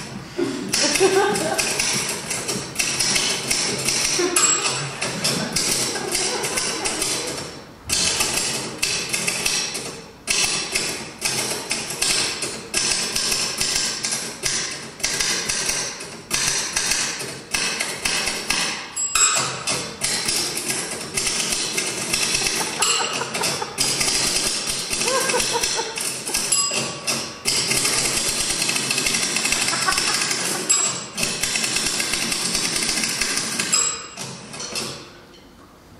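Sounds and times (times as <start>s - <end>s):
typewriter keys clacking: 0.8s - 34.9s
short high rings: 26.5s - 27.1s.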